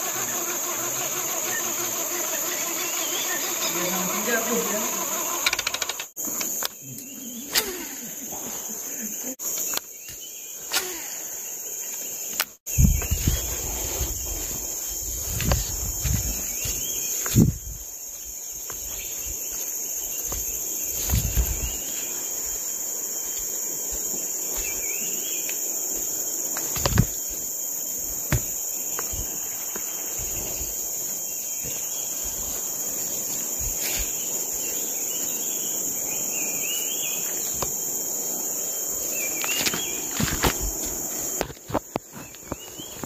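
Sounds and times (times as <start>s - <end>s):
forest insects buzzing: 0.0s - 43.0s
sharp clicks: 5.3s - 6.8s
microphone handling rumbles: 12.7s - 17.8s, 20.4s - 21.8s.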